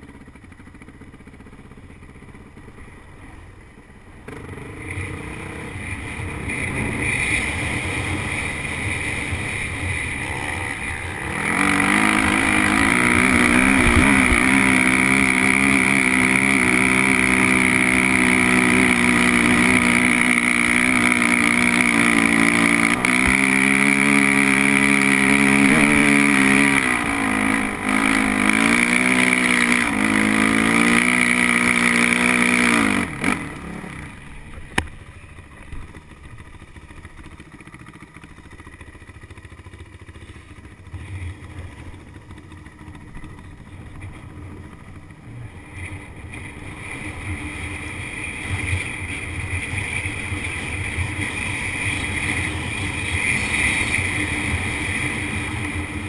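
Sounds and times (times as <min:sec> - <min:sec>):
dirt bike engine revving: 0:04.2 - 0:35.0, 0:42.0 - 0:56.0.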